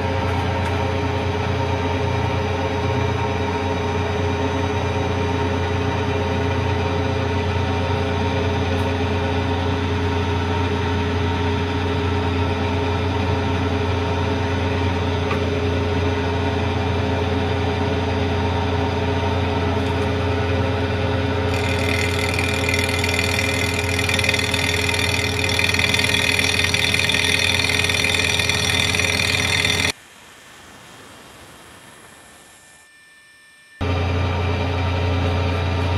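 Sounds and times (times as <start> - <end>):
milling machine hum: 0.0 - 35.9
metal cutting noise: 21.4 - 30.0.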